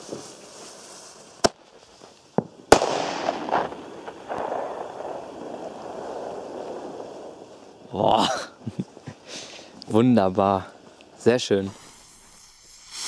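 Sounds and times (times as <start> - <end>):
firecracker bangs: 2.4 - 7.6
fuse hissing: 10.5 - 13.0.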